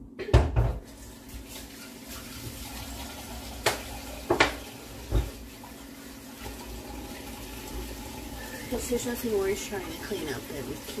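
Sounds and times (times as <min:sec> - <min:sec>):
tap running into sink: 0:00.4 - 0:05.6
dishes clunking: 0:03.6 - 0:05.4.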